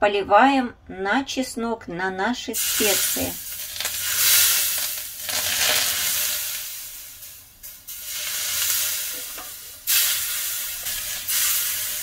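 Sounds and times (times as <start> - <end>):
hot oil sizzling: 2.6 - 12.0.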